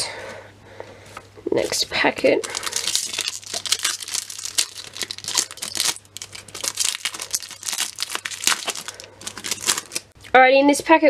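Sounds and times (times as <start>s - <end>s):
foil wrapper crinkling: 2.4s - 10.2s.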